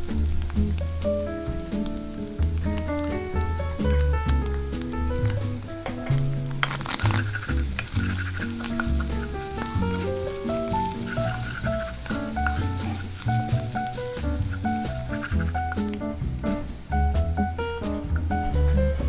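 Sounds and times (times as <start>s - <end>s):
tuna sizzling in a frying pan: 0.0s - 17.4s
background music: 0.0s - 19.0s
wooden spatula scraping a pan: 6.5s - 16.0s.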